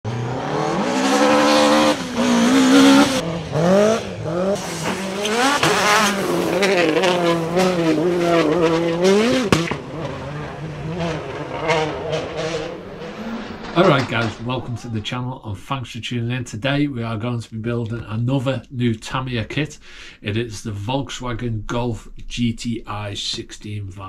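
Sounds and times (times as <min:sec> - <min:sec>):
car engine revving: 0:00.0 - 0:15.2
sharp crack: 0:04.6 - 0:15.8.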